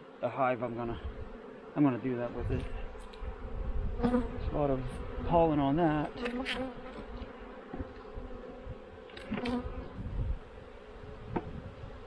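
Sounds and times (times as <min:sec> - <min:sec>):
bees buzzing: 0:00.0 - 0:12.0.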